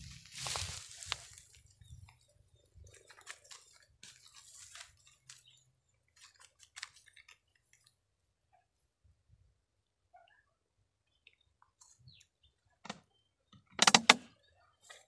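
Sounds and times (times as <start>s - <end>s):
dry grass crackling: 0.0s - 8.0s.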